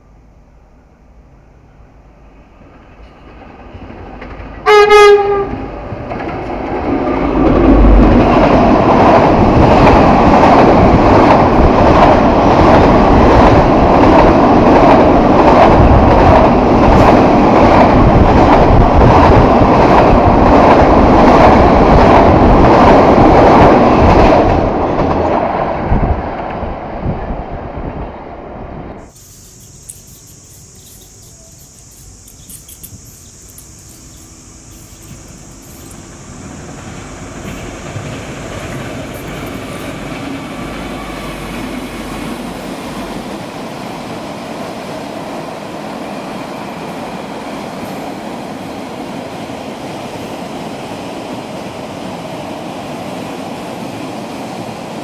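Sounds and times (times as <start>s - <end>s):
train horn blast: 4.6s - 5.7s
high-pitched hum: 29.1s - 36.4s
train wheels clattering over rail joints: 29.6s - 41.8s.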